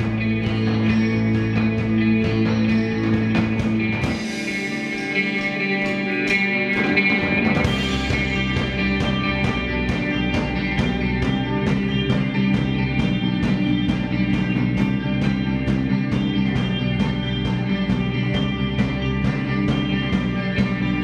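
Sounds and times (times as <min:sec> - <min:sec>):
live instrumental rock band: 0:00.0 - 0:21.0
steady cymbal beat: 0:00.0 - 0:21.0.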